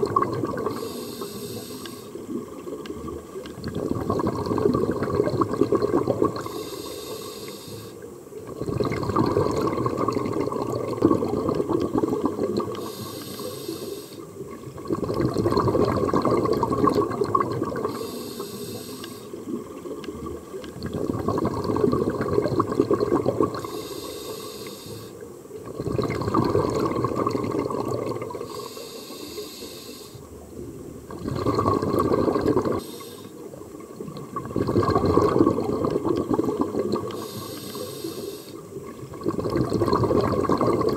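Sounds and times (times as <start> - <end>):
exhaled bubbles rushing: 0.0 - 1.0, 2.2 - 6.6, 8.4 - 12.9, 14.4 - 18.2, 19.3 - 23.8, 25.6 - 28.7, 30.4 - 37.5, 38.7 - 40.9
regulator inhale hiss: 0.7 - 2.2, 6.4 - 8.1, 12.8 - 14.4, 17.8 - 19.4, 23.6 - 25.4, 28.4 - 30.3, 32.7 - 33.5, 37.1 - 38.7.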